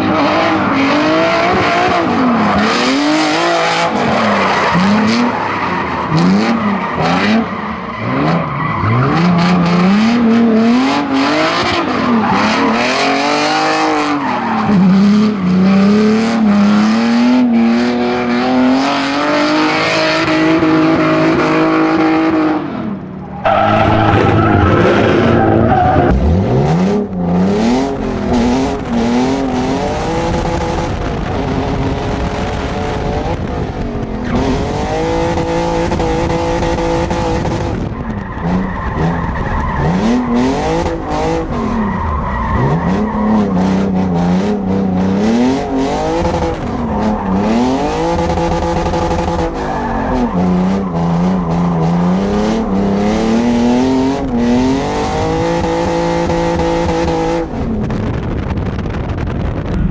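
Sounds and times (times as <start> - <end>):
car engine revving: 0.0 - 59.9
tyre squeal: 23.2 - 26.1.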